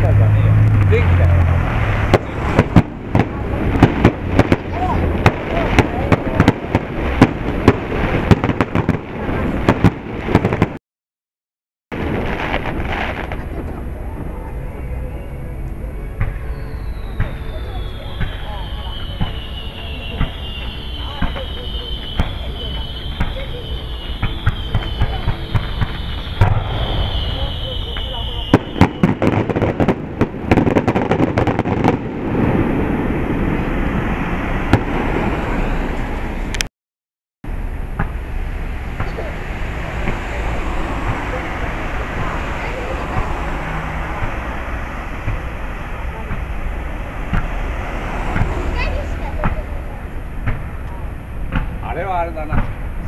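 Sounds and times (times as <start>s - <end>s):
fireworks bangs and crackles: 0.0s - 10.8s, 11.9s - 15.0s, 16.1s - 36.7s, 37.5s - 53.0s
steady background noise: 37.5s - 53.0s
steady low noise: 37.5s - 53.0s.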